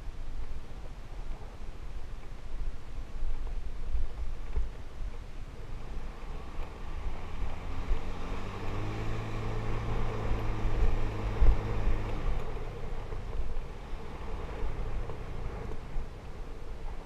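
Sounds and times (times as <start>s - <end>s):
wind buffeting microphone: 0.0s - 17.0s
motorbike engine climbing: 5.5s - 17.0s.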